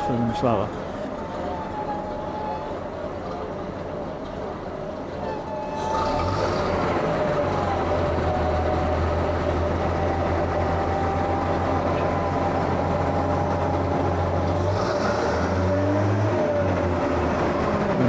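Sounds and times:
fire engine engine droning: 0.0 - 18.0.

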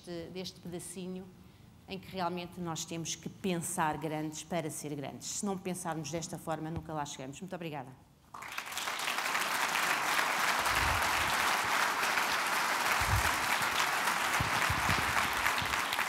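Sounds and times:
audience applauding: 8.4 - 16.0.

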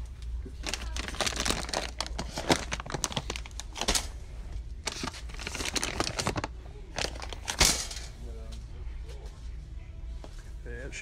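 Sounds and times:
low steady hum: 0.0 - 11.0
plastic bags crinkling: 0.4 - 8.1.

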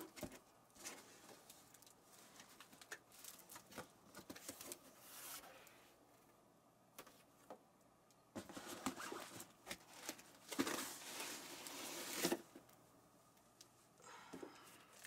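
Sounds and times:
packaging rustling and crinkling: 8.4 - 12.6.

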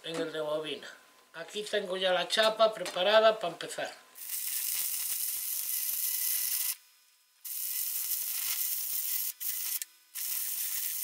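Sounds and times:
welding arc crackling: 4.2 - 11.0.

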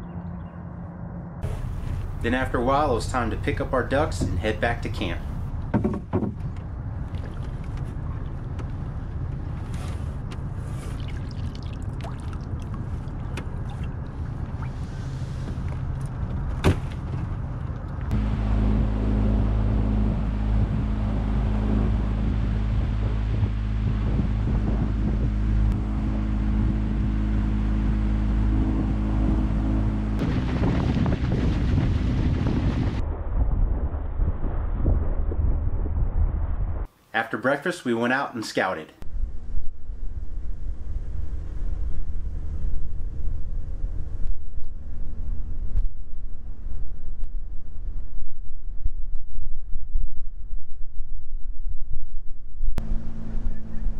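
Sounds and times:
boat motor running: 0.0 - 33.0, 52.8 - 53.9
wind buffeting microphone: 1.4 - 36.9.

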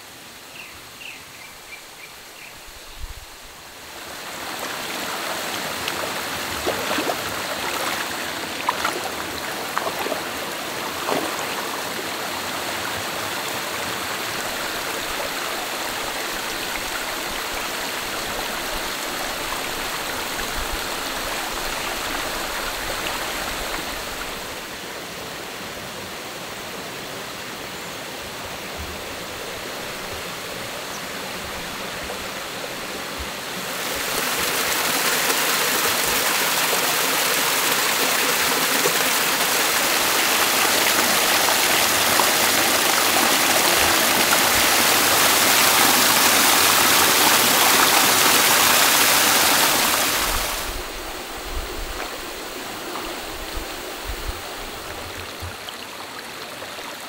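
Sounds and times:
stream water rushing: 0.0 - 57.0.

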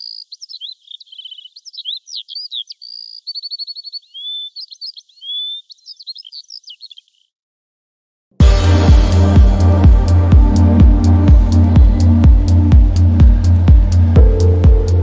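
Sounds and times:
bird chirping and trilling: 0.0 - 7.3.

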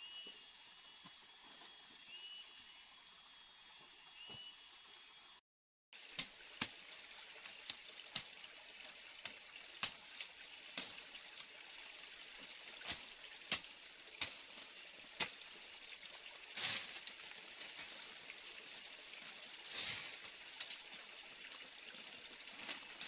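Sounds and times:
running water hiss: 6.0 - 23.0.

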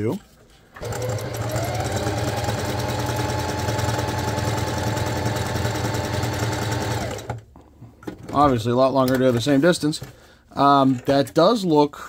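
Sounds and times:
electric sewing machine running: 0.8 - 7.4.

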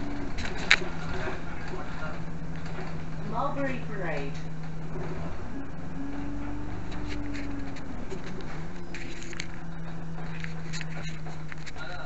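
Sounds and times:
bus engine droning: 0.0 - 12.0
rattles and clicks: 0.0 - 12.0
whine rising and falling: 0.0 - 12.0
camera rubbing and scraping: 0.2 - 1.9, 4.8 - 12.0.

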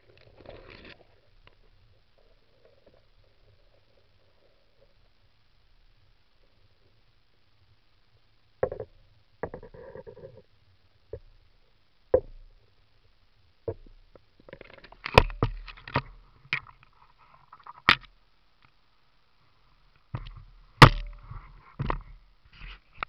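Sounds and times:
camera knocking and clacking: 15.0 - 16.7, 20.2 - 22.1.

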